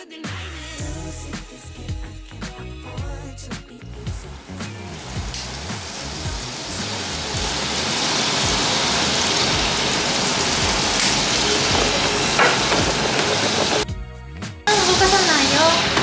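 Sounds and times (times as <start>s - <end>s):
sauce sizzling in a frying pan: 4.2s - 13.8s.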